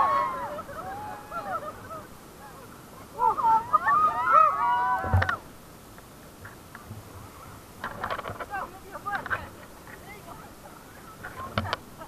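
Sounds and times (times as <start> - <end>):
people screaming and whooping: 0.0 - 5.4
wind and water rushing: 0.0 - 12.0.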